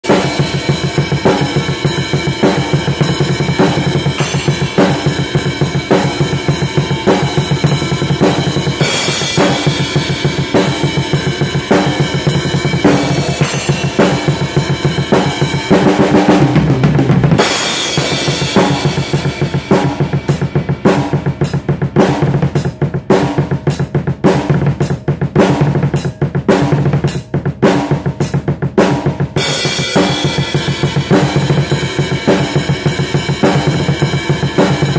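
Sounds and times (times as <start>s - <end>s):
cymbals: 0.0s - 16.7s, 17.3s - 22.7s, 29.4s - 34.9s
snare drum: 0.0s - 28.1s, 28.8s - 31.7s.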